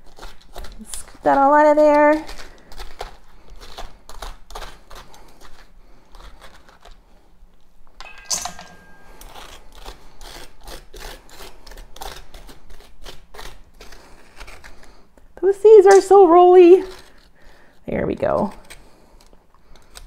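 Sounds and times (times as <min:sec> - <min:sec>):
spoon knocking metal bowl: 0:08.0 - 0:09.3.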